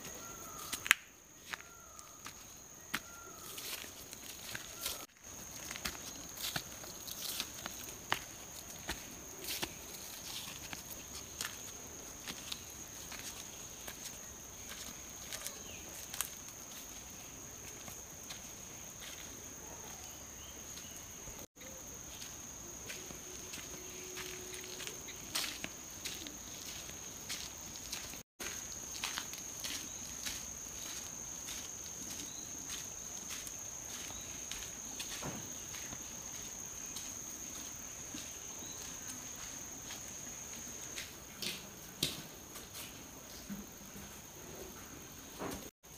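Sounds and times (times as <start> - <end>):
sandal footsteps on dirt: 0.0 - 42.9
high-pitched insect drone: 21.6 - 40.6.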